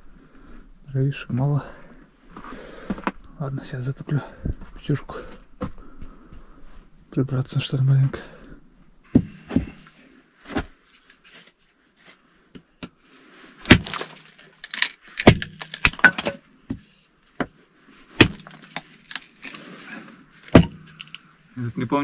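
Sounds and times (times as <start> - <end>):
hatchet chopping log: 13.7 - 14.3, 15.2 - 16.8, 18.2 - 18.9, 20.5 - 21.2.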